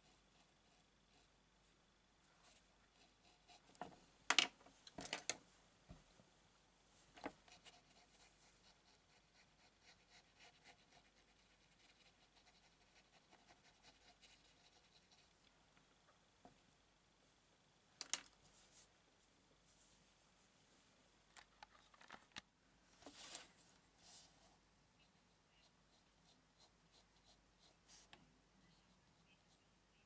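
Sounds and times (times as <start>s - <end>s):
pencil scratching on paper: 7.5s - 15.4s, 25.2s - 28.1s.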